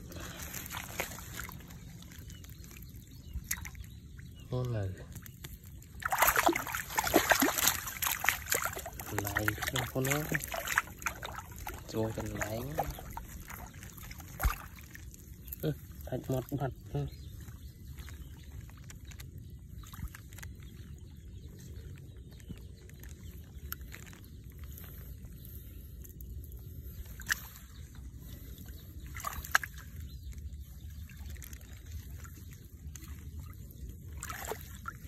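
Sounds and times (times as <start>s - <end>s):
grass rustling: 0.0s - 3.8s
water trickling and sloshing: 0.0s - 35.0s.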